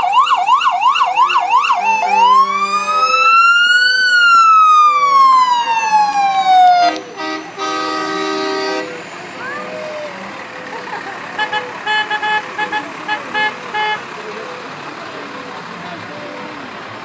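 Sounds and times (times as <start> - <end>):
fire engine siren: 0.0 - 10.4
truck horn blast: 2.0 - 3.4, 6.8 - 9.1, 11.4 - 14.2.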